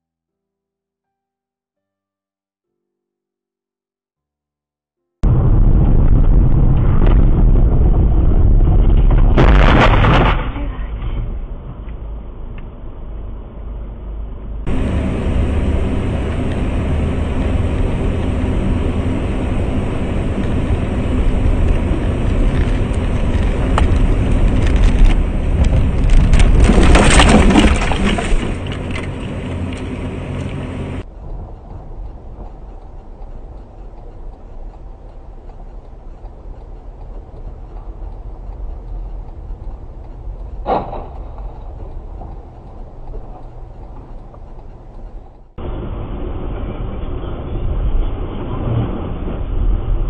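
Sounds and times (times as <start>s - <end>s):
cluster of impacts: 5.2s - 10.7s
loud crash: 5.2s - 11.8s, 26.2s - 29.1s
vehicle rumbling: 5.2s - 50.0s
vehicle humming: 10.6s - 50.0s.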